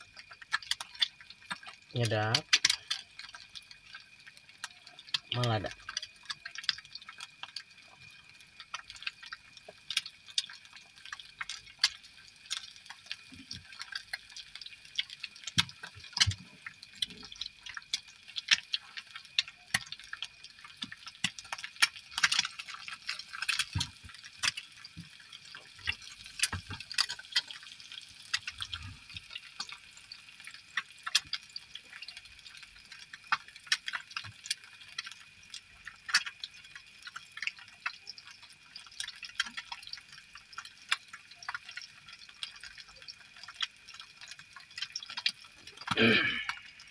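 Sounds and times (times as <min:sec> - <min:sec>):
egg sizzling in a pan: 0:00.0 - 0:46.9.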